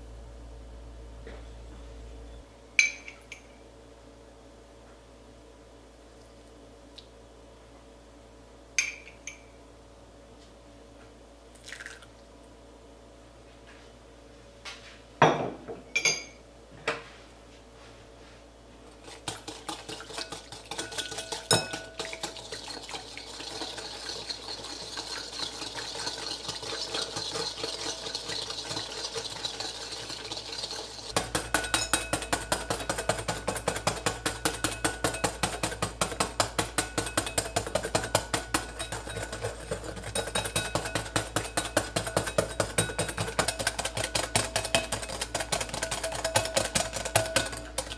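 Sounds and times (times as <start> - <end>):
whisk rattling in glass bowl: 19.0 - 47.9.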